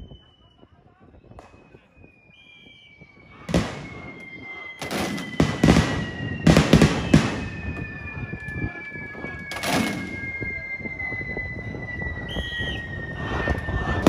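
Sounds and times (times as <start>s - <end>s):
smoke grenades bursting: 3.5s - 4.2s, 4.8s - 7.8s.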